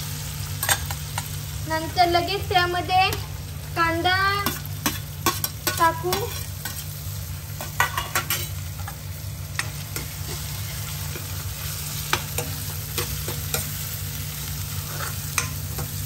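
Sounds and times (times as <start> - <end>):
onion sizzling in oil: 0.0 - 16.0
spatula scraping a pan: 4.4 - 7.0, 9.6 - 16.0.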